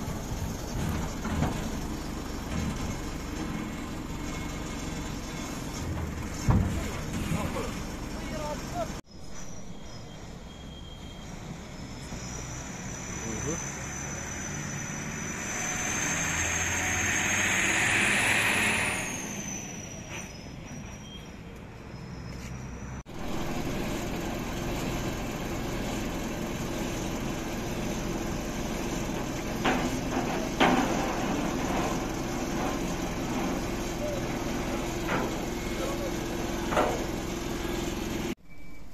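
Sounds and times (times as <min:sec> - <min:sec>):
engine and road rumble: 0:00.0 - 0:38.9
vehicle passing with high whine: 0:11.2 - 0:19.8.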